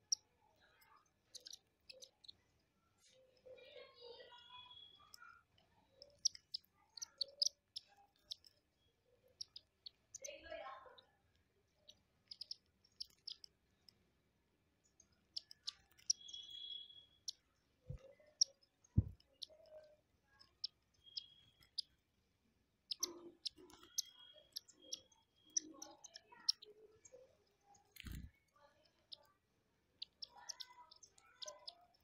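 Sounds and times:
beaks tapping on glass: 15.1s - 21.9s, 22.9s - 29.3s, 30.0s - 32.0s
short high bird chirps: 16.0s - 17.4s.

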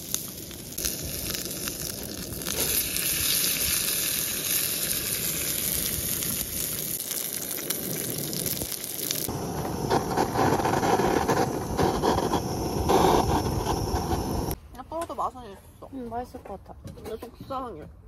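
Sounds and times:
steak sizzling in a pan: 0.0s - 9.3s.

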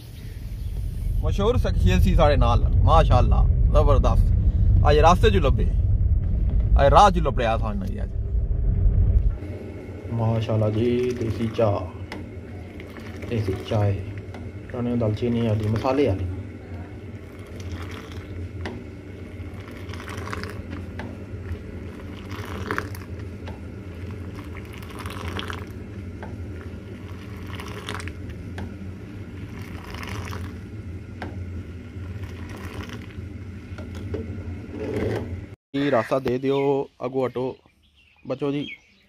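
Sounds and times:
steady low hum: 0.0s - 38.0s
tea pouring and splashing: 10.7s - 16.2s, 17.1s - 18.5s, 19.2s - 28.4s, 29.3s - 30.7s, 32.0s - 33.2s.

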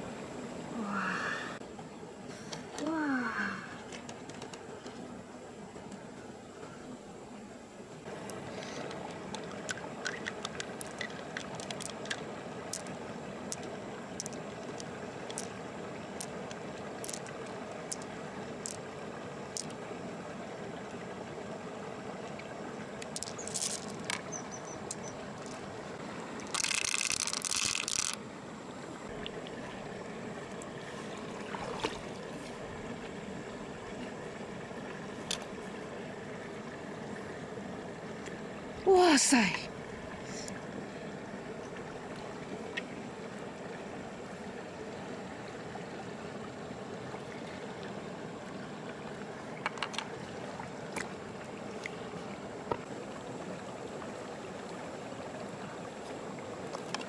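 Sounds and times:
flowing water: 0.0s - 57.0s
pearls clicking against shell: 8.3s - 15.6s, 16.2s - 18.9s, 19.5s - 19.8s, 23.0s - 25.6s, 26.5s - 28.2s
pearls clattering into shell: 17.0s - 18.8s, 23.1s - 25.6s, 26.5s - 28.2s.

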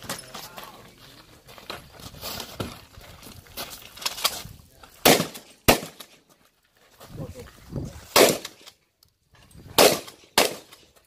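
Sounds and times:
footsteps: 0.0s - 5.0s, 6.0s - 8.1s
shotgun shot: 5.0s - 6.2s, 8.1s - 8.6s, 9.8s - 10.8s.

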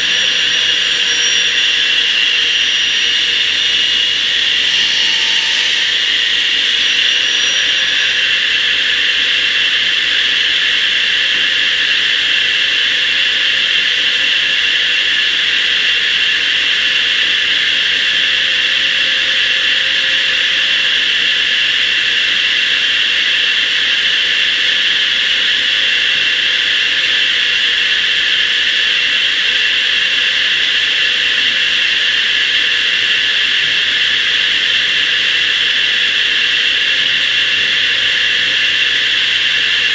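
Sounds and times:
saw blade spinning whine: 0.0s - 14.0s.

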